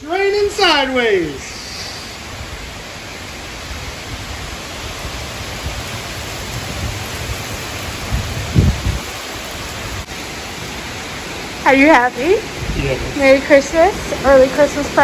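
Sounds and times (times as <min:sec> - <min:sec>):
heavy rain pouring: 0:00.0 - 0:15.0
wind rumbling on microphone: 0:01.3 - 0:10.4, 0:12.0 - 0:15.0.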